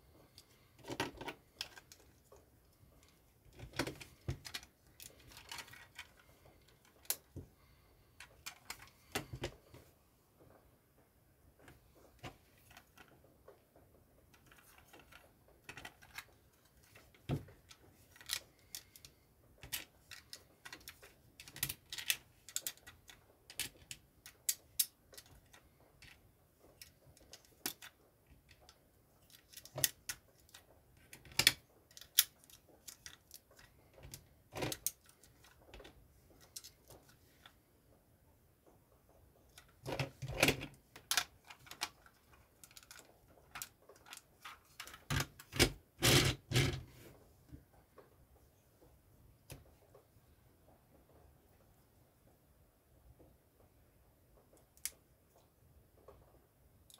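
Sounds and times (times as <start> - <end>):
plastic bricks clicking: 18.1 - 26.2.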